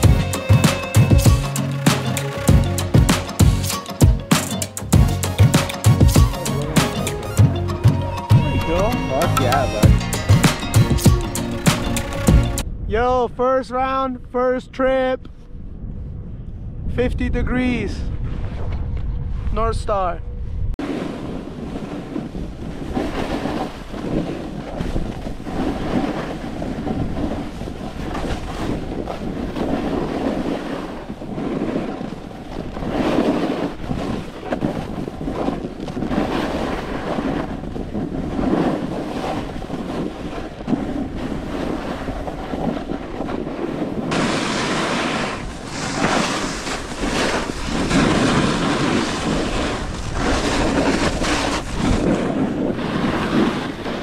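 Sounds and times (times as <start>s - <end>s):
wind on microphone: 0.0s - 1.4s, 6.1s - 13.4s, 15.1s - 54.0s
snowboard edge scraping snow: 20.8s - 54.0s.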